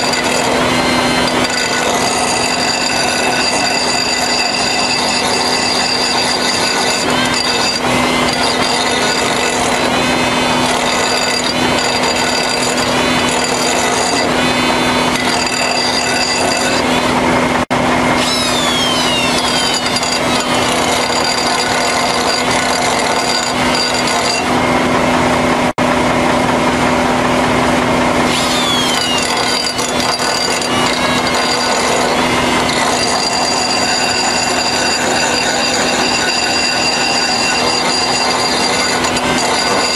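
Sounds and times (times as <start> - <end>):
air die grinder whining: 0.0 - 39.9.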